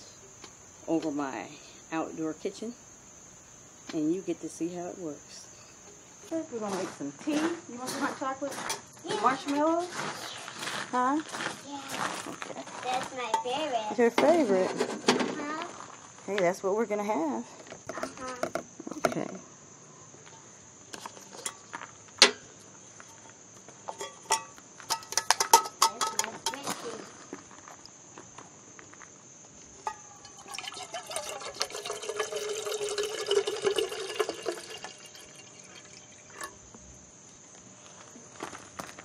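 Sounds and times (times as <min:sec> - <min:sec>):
clicks and knocks from handling pot: 0:23.9 - 0:26.7, 0:29.8 - 0:36.6
water pouring into a metal pot: 0:30.2 - 0:36.6.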